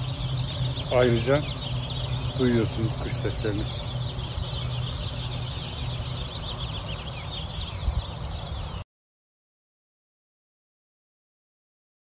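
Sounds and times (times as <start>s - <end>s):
small birds chirping: 0.0s - 8.8s
steady low hum: 0.0s - 8.8s.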